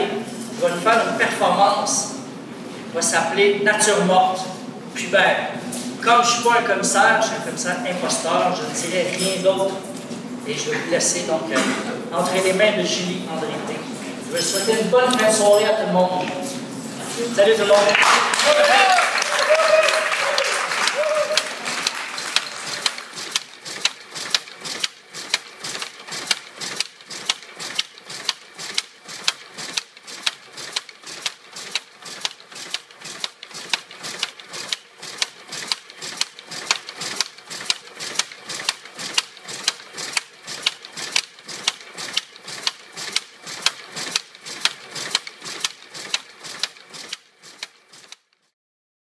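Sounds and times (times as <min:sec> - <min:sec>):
sharp mechanical clicks: 0:19.9 - 0:48.5.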